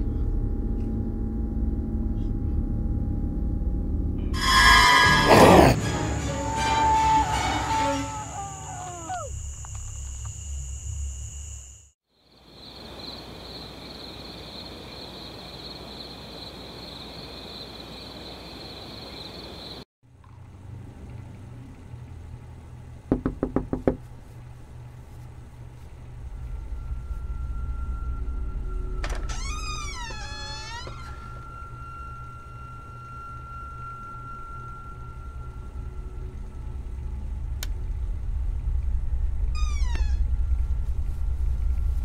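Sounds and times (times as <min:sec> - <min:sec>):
low room hum: 0:00.0 - 0:04.3, 0:20.2 - 0:42.0
knocks on a door: 0:23.1 - 0:24.0.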